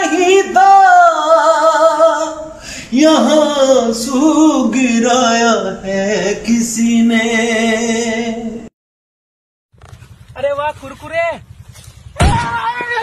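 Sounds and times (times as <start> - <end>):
man singing: 0.0 - 8.7.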